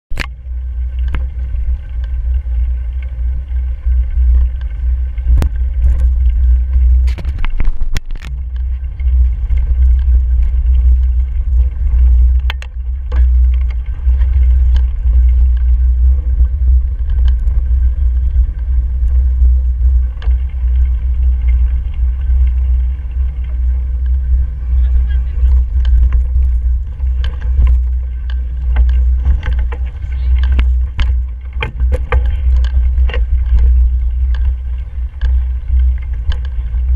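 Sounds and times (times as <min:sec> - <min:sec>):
wind buffeting microphone: 0:00.1 - 0:36.9
bike tyres on dirt: 0:00.4 - 0:36.9
bike knocks and rattles: 0:01.0 - 0:36.9.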